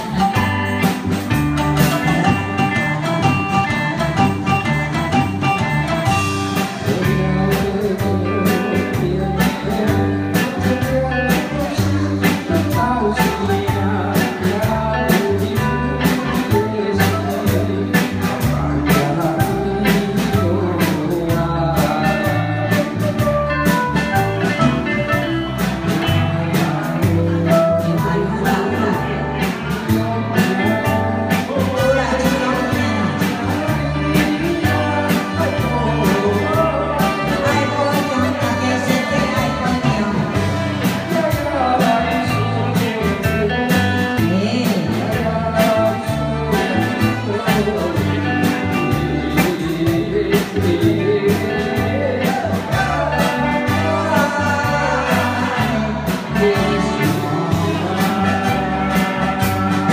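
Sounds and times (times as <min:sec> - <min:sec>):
live band pop song: 0:00.0 - 0:59.9
people singing into microphones: 0:26.0 - 0:59.9.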